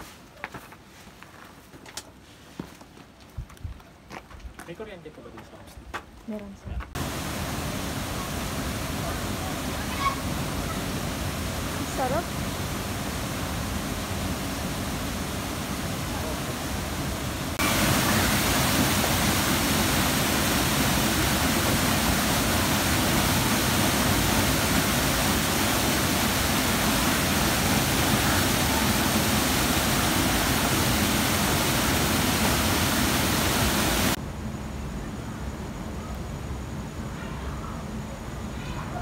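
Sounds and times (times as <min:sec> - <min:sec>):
small waterfall pouring: 0:07.0 - 0:34.2
stream rushing water: 0:07.0 - 0:34.2.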